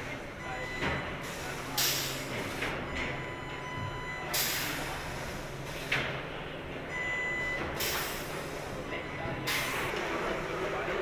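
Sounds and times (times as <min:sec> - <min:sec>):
factory machine noise: 0:00.0 - 0:11.0.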